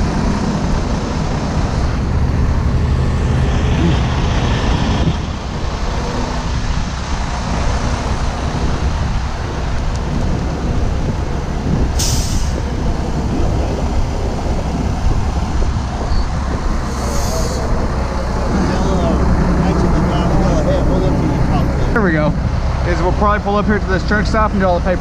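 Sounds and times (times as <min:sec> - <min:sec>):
diesel trucks idling: 0:00.0 - 0:25.0
air brake hiss: 0:12.0 - 0:12.6, 0:16.9 - 0:17.7.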